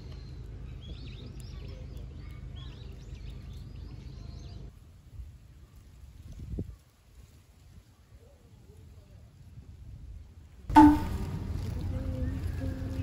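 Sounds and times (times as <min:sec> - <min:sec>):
small birds chirping: 0:00.0 - 0:04.7
low background rumble: 0:09.8 - 0:13.0.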